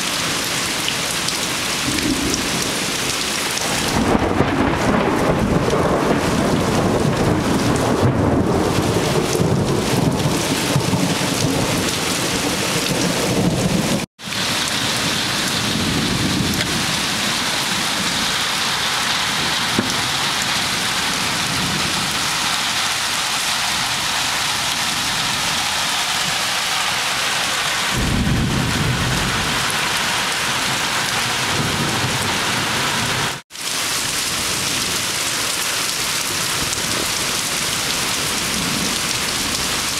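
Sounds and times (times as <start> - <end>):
heavy rain pouring: 0.0 - 39.9
thunder rumbling: 3.6 - 18.4, 27.8 - 29.8.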